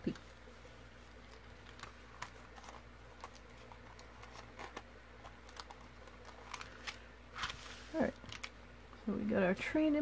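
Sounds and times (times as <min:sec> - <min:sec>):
paper clicks and rustles: 0:01.1 - 0:08.6.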